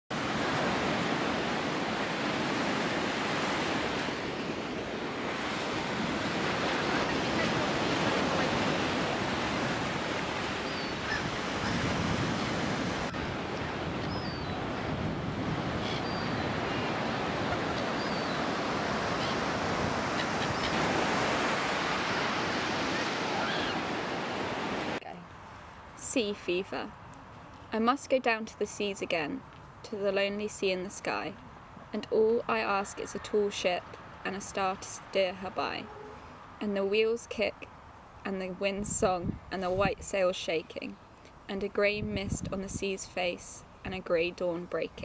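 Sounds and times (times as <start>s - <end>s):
sea surf washing up beach: 0.1s - 25.0s
wind: 0.1s - 45.0s
faint gull calls: 10.6s - 12.5s, 15.8s - 18.4s, 19.1s - 19.5s, 20.1s - 21.0s, 22.9s - 23.9s.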